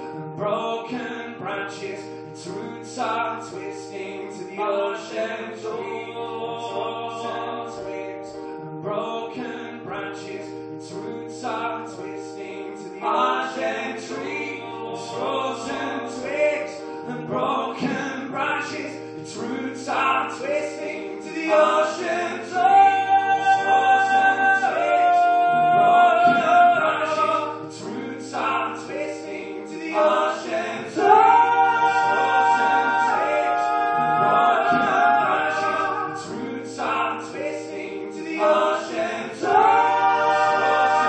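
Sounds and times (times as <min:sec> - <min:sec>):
man singing long notes: 0:11.7 - 0:41.0
acoustic guitar loop: 0:29.9 - 0:37.2.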